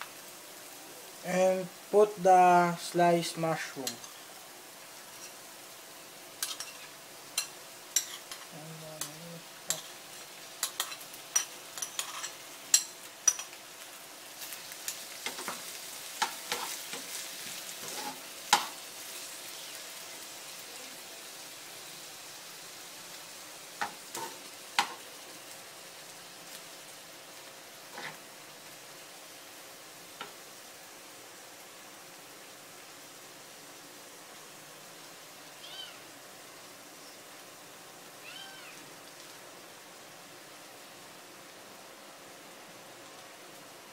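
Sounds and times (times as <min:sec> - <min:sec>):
mushrooms and onions sizzling in pan: 0:00.0 - 0:43.9
metal spatula scraping pan: 0:17.8 - 0:18.7, 0:27.9 - 0:28.2.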